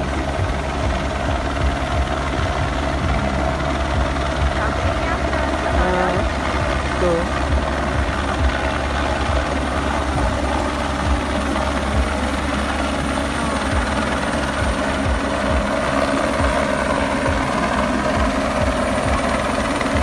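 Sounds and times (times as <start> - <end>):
helicopter hovering: 0.0 - 20.0.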